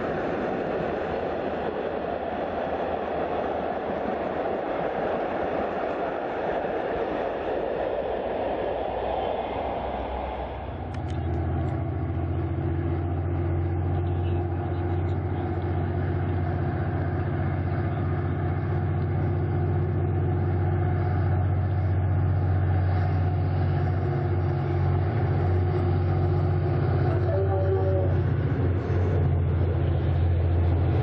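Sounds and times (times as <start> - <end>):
diesel locomotive engine droning: 0.0 - 31.0.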